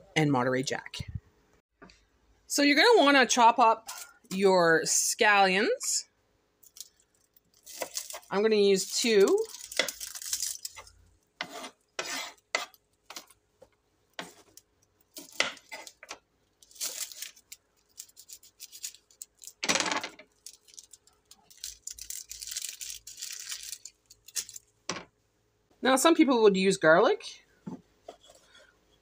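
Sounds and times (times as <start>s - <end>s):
papery skin rustling: 9.2s - 11.0s, 16.6s - 19.6s, 20.3s - 24.6s
knife scraping on wooden board: 10.8s - 13.2s.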